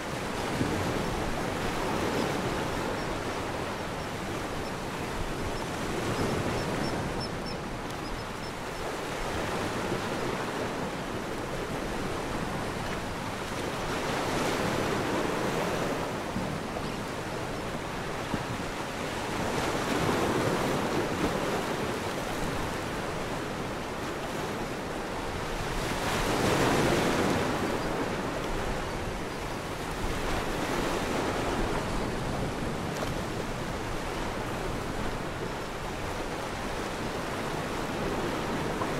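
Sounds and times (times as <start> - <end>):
ocean waves washing in: 0.0 - 38.9.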